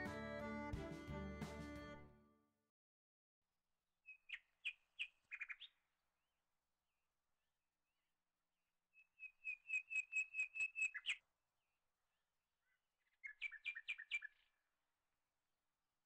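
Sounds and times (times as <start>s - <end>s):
bird chirping high notes: 0.0s - 2.2s.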